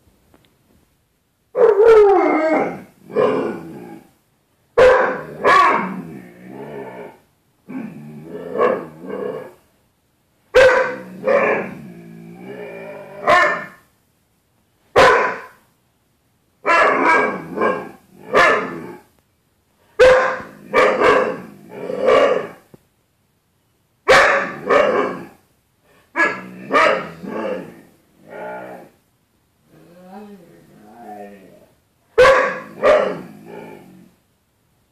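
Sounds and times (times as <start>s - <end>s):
dog barking and growl-yowling: 1.5s - 4.2s, 4.8s - 9.6s, 10.5s - 13.9s, 15.0s - 15.6s, 16.6s - 19.1s, 20.0s - 22.7s, 24.0s - 25.4s, 26.1s - 29.0s, 29.7s - 34.2s.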